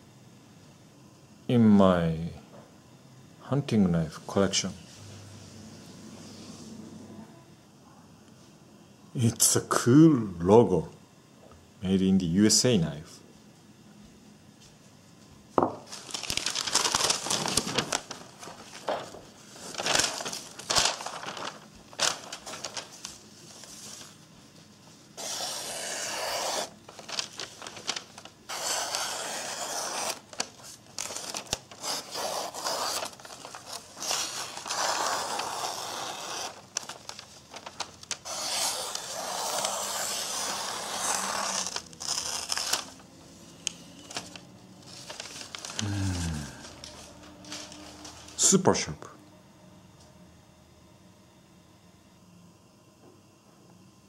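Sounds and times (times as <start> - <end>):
paper rustling and crinkling: 15.9 - 43.0, 44.0 - 48.5
knife slicing paper: 25.2 - 43.0.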